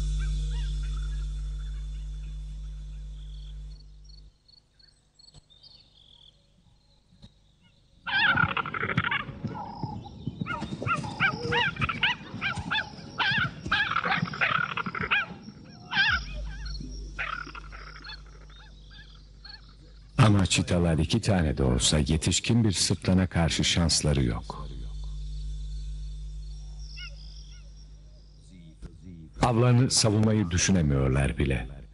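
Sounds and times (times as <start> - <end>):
short yelping calls: 8.1 - 9.8, 10.4 - 20.2, 26.9 - 28.0
animals growling and snarling: 8.1 - 20.2.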